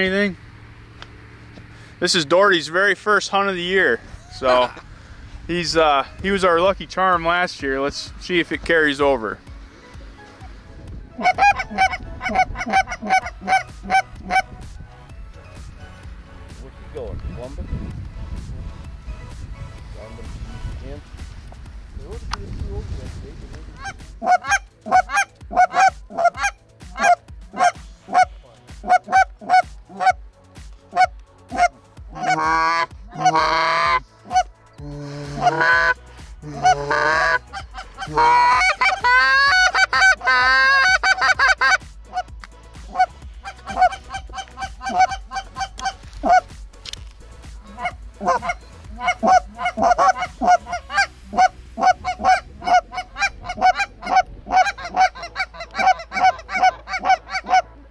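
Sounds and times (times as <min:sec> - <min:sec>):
geese honking: 0:01.8 - 0:05.0, 0:06.4 - 0:14.7, 0:23.7 - 0:57.9
goose call blown: 0:04.3 - 0:04.8, 0:11.1 - 0:14.6, 0:23.8 - 0:30.2, 0:30.9 - 0:46.6, 0:47.6 - 0:57.8.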